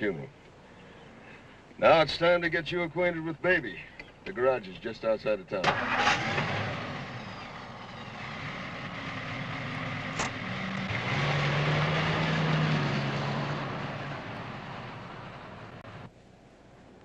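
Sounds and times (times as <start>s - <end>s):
car engine driving off: 5.6s - 16.1s
tyre and road noise: 5.6s - 16.1s.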